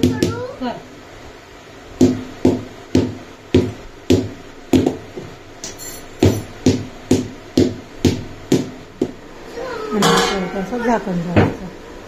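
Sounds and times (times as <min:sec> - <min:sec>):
sharp ringing percussive hits: 0:05.6 - 0:06.6, 0:10.0 - 0:10.8.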